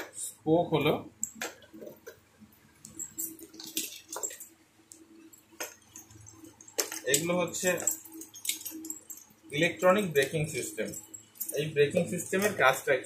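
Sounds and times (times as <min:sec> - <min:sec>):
faint steady hum: 0:00.0 - 0:13.0
rustling and clicks of handled parts: 0:01.2 - 0:12.9.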